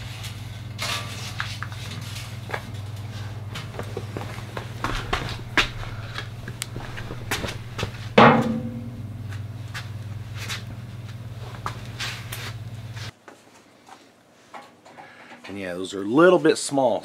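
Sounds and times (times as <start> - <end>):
steady low hum: 0.0 - 13.1
metal clank on steel bucket: 8.2 - 9.1.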